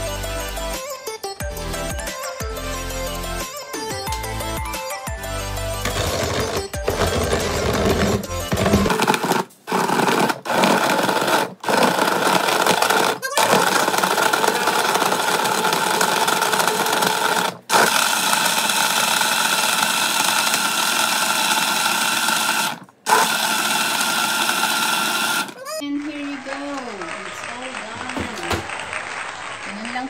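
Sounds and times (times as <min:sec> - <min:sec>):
blender running: 0:05.8 - 0:25.7.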